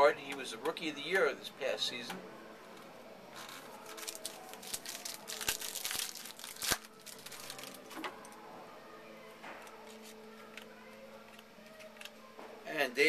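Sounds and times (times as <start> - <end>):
foil wrapper crinkling and tearing: 3.4 - 8.0.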